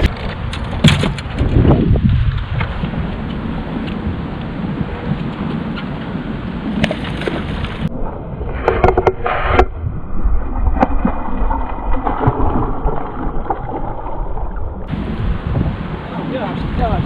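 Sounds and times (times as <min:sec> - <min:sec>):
wind rumble on microphone: 0:00.0 - 0:17.0
fish splashing in water: 0:10.8 - 0:14.9.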